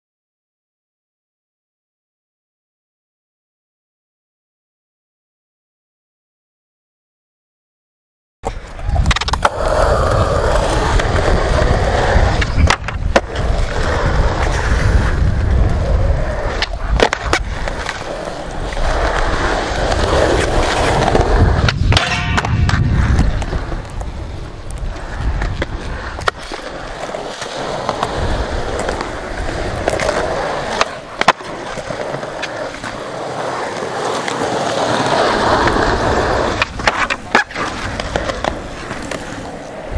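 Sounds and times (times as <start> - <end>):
skateboard clacks: 8.4 - 39.9
skateboard wheels rolling on concrete: 8.4 - 39.9.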